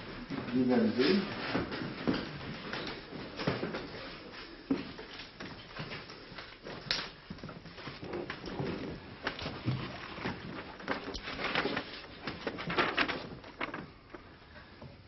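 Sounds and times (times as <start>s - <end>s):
paper rustling: 7.8s - 14.4s.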